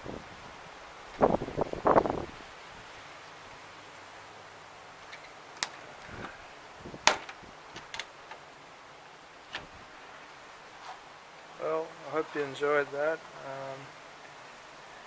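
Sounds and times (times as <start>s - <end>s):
metal latches clicking shut: 7.0s - 8.4s, 9.5s - 9.7s.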